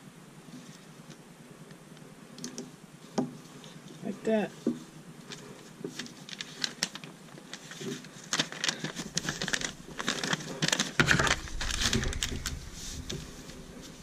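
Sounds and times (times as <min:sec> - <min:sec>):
paper booklet rustling: 0:04.4 - 0:14.0
low handling rumble: 0:11.0 - 0:14.0.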